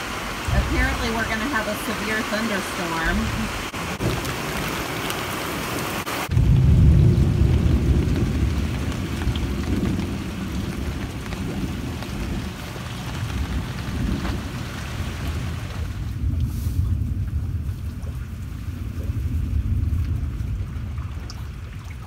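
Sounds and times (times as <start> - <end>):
heavy rain hissing: 0.0 - 21.6
deep low rumble: 6.3 - 22.0.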